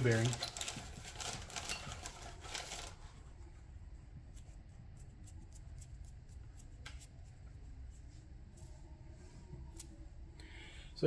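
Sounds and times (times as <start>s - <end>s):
handling rustle: 0.0s - 3.1s.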